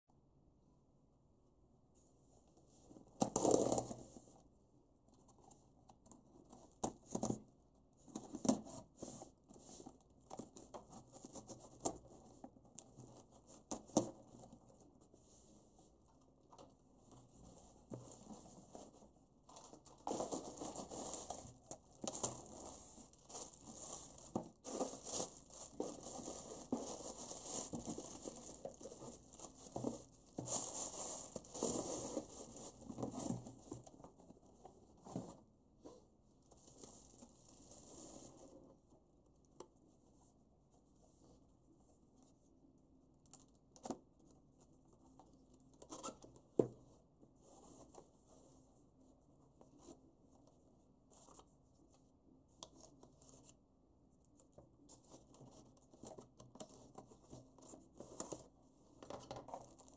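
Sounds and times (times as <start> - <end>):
plastic crinkling and tearing: 20.0 - 32.7.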